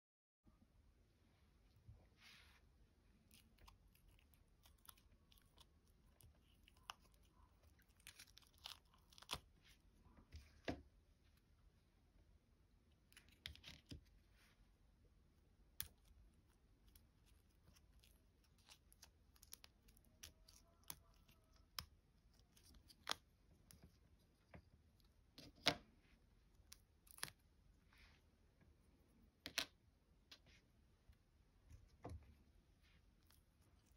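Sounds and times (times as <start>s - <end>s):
silicone mold peeling: 3.1s - 11.5s.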